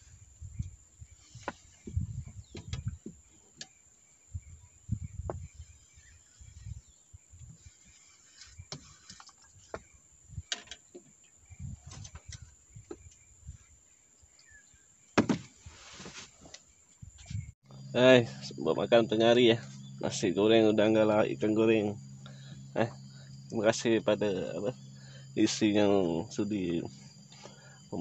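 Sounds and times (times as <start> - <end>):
dull low thumps: 1.5 - 3.3, 4.3 - 5.7
faint bird calls: 15.8 - 28.0.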